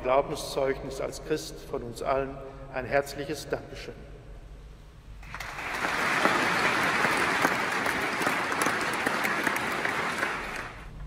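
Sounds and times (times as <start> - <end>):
congregation applauding: 5.2 - 11.0.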